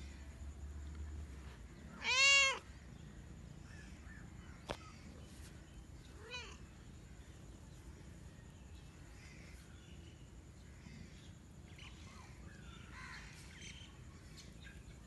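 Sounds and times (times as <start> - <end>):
cat meowing: 2.0 - 2.7.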